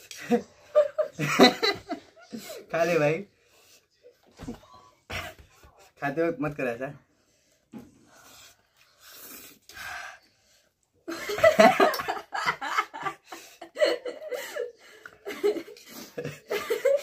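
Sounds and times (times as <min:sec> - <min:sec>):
man and woman laughing: 0:00.2 - 0:02.7, 0:11.1 - 0:17.0.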